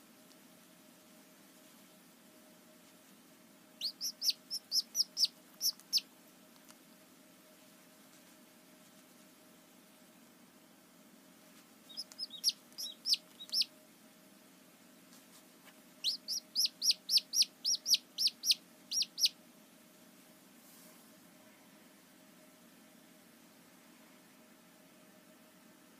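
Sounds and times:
chick peeping: 3.8s - 6.8s, 11.8s - 13.7s, 16.0s - 19.4s.

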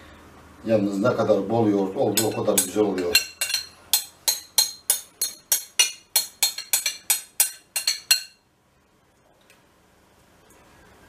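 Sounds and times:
utensil tapping a bowl: 2.1s - 8.4s.

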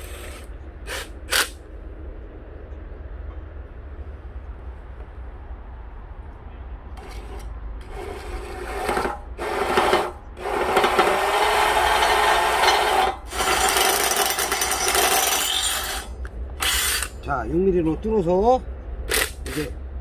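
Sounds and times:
electric drill boring through steel: 7.9s - 17.1s.

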